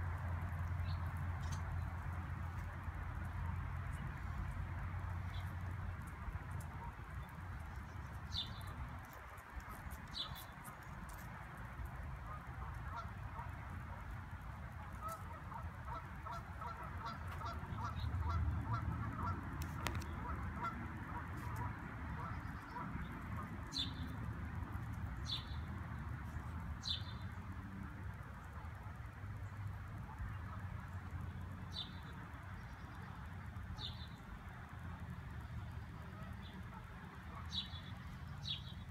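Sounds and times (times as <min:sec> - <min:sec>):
steady low rumble: 0:00.0 - 0:38.9.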